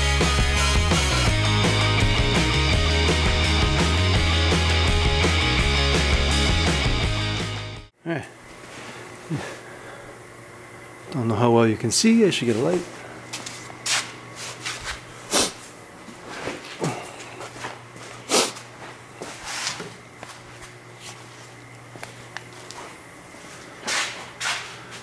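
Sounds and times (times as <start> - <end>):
steady low hum: 7.9 - 25.0
footsteps: 12.5 - 25.0.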